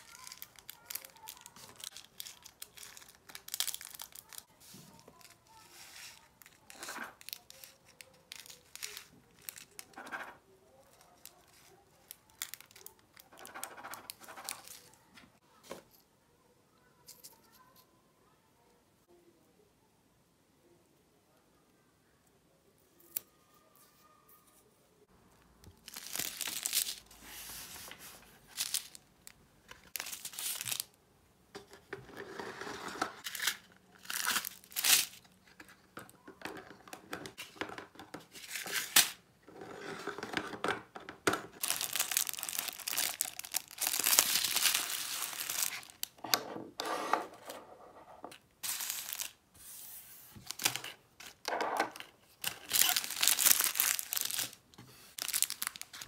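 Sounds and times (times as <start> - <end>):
plastic bags crinkling: 0.0 - 4.5, 25.7 - 27.2, 28.4 - 31.0, 33.2 - 35.5, 41.6 - 46.2, 48.6 - 49.4, 50.5 - 56.0.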